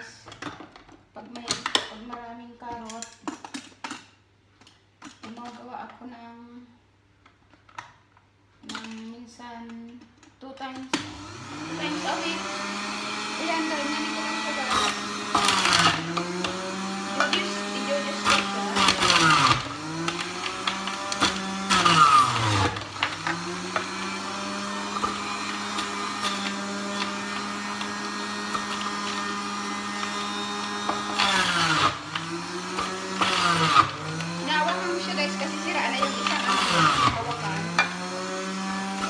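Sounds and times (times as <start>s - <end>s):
juicer motor humming: 11.0s - 39.0s
loud grinding of carrots: 11.0s - 39.0s.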